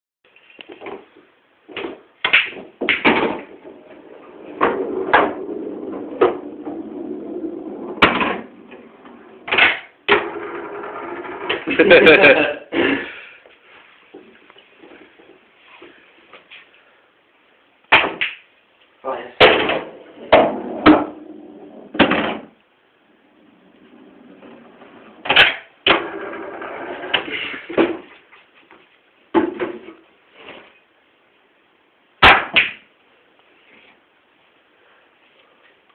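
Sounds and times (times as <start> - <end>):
pool balls rolling: 0.8 - 12.5, 19.5 - 28.2
pool balls clacking: 1.7 - 12.3, 19.5 - 22.6, 23.7 - 28.1.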